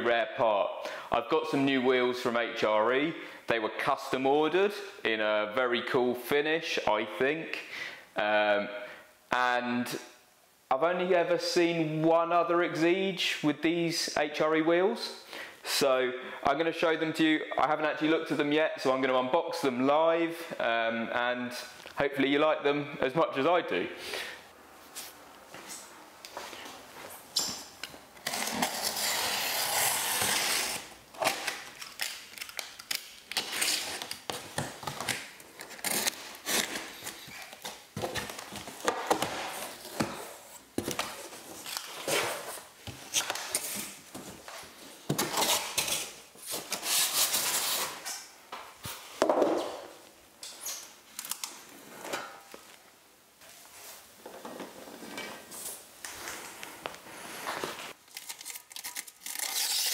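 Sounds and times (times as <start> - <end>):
knife slicing packing tape: 28.3 - 34.2, 58.1 - 59.9.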